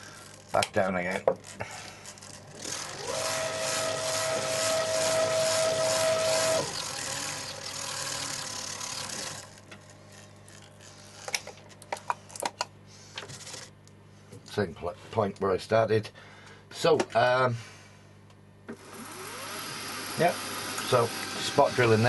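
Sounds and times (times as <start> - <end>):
low machine running noise: 0.0 - 22.0
milling machine motor whine: 2.1 - 11.4, 18.7 - 22.0.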